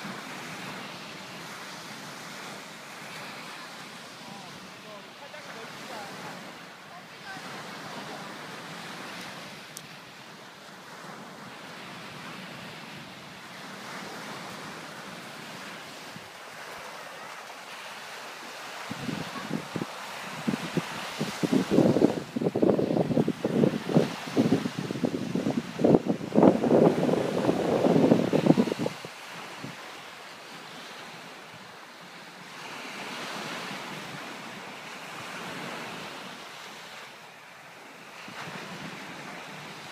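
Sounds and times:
surf breaking on beach: 0.0 - 31.7
wind: 0.0 - 39.9.

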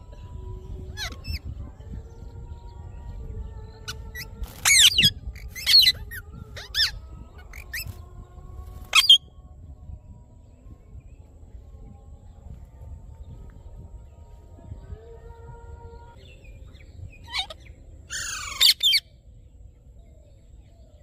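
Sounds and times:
parakeets squawking: 1.0 - 1.4, 3.9 - 7.9, 17.3 - 19.0.

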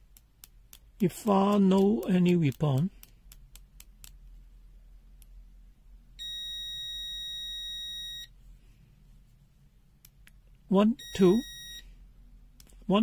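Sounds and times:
multimeter high-pitched beep: 6.2 - 8.3, 11.0 - 11.9.

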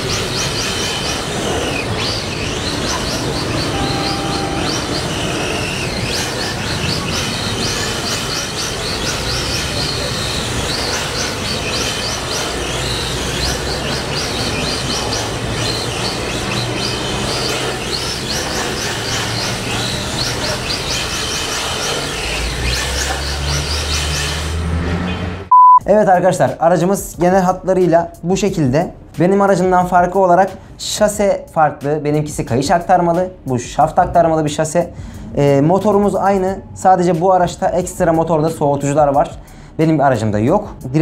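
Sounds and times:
toy car tyres scrubbing on tiles: 0.0 - 25.4.

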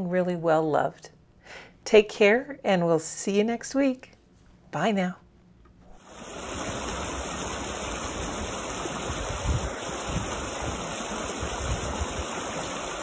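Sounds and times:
creek water rushing over rocks: 6.1 - 13.0.

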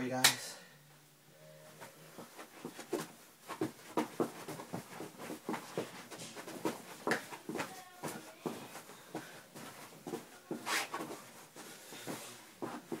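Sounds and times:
feet dancing on carpet: 2.2 - 13.0.

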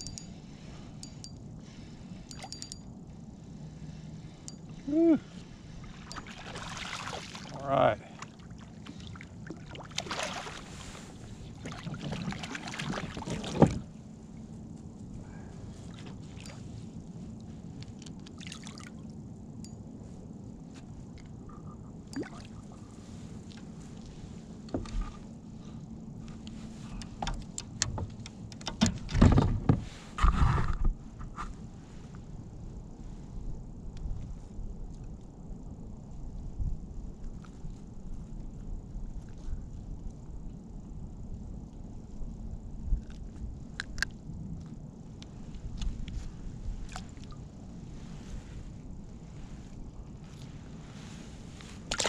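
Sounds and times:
splashes and knocks: 6.1 - 7.6, 8.2 - 10.8, 11.6 - 13.9.

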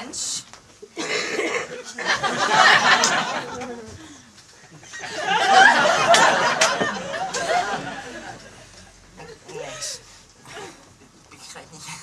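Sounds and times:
audience laughing: 1.4 - 3.9, 4.7 - 9.7.

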